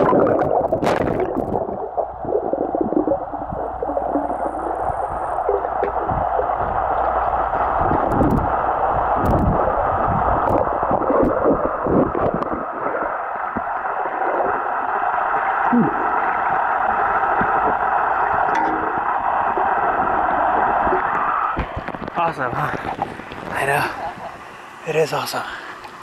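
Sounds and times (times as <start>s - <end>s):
water knocks and thumps: 0.0s - 8.5s, 10.4s - 12.7s, 17.3s - 23.5s.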